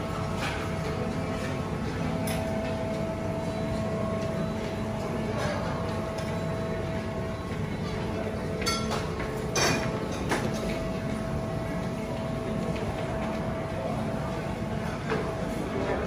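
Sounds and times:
steady low hum: 0.0s - 16.0s
tableware clinking: 8.6s - 10.8s.

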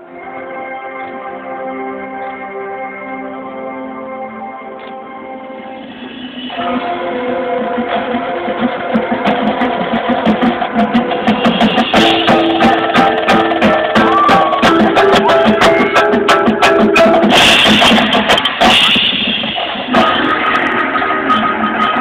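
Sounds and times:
marching band playing: 5.1s - 22.0s.

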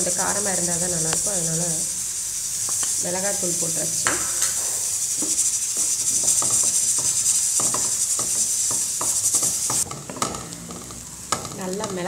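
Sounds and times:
hot oil sizzling: 0.0s - 12.0s
wooden spatula scraping a pan: 4.0s - 12.0s.

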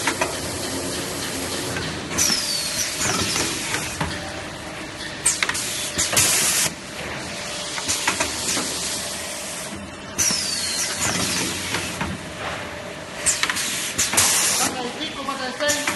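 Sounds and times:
factory machinery noise: 0.0s - 15.9s
pneumatic air hiss: 13.2s - 14.7s.

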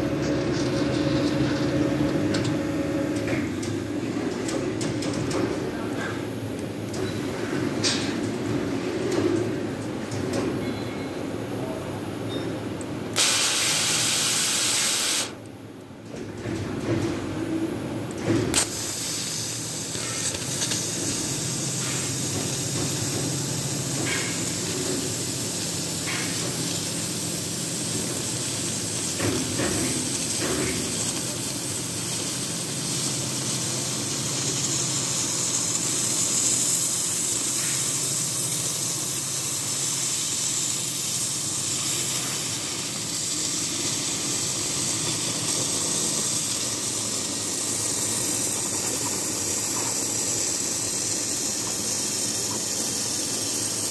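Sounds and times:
cutting torch hissing: 13.2s - 15.4s, 18.5s - 53.9s.

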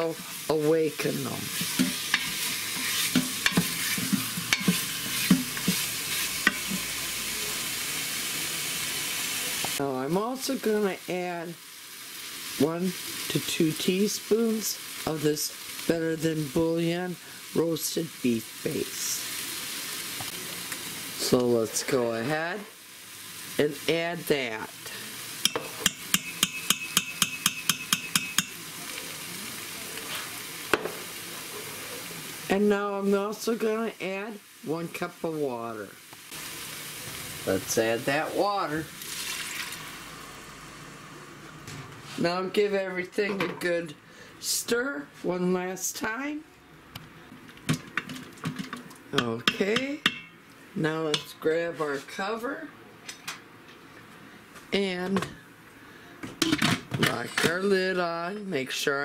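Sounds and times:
meat sizzling in oil: 0.0s - 41.5s
wooden spoon scraping a pot: 1.4s - 6.8s
spoon tapping ringing metal pot: 25.4s - 28.6s.

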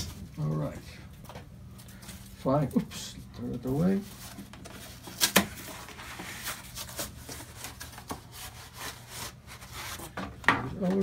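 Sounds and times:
cardboard rustling and scraping: 3.5s - 11.0s.

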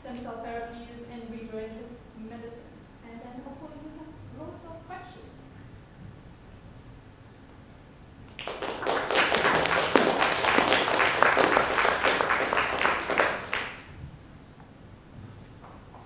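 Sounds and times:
audience applauding: 8.3s - 13.9s.

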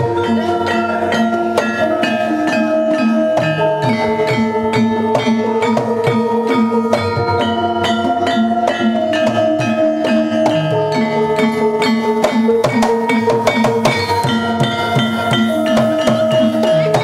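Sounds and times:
hand drum strokes: 0.0s - 17.0s
kettle gongs and hanging gongs: 0.0s - 17.0s
metallophones struck with mallets: 0.0s - 17.0s.

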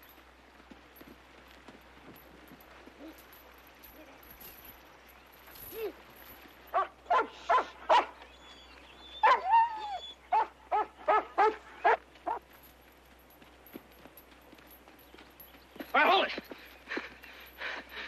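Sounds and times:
dog barking: 6.7s - 8.2s, 9.2s - 9.5s, 10.3s - 12.4s
dog yelping: 6.7s - 12.4s.

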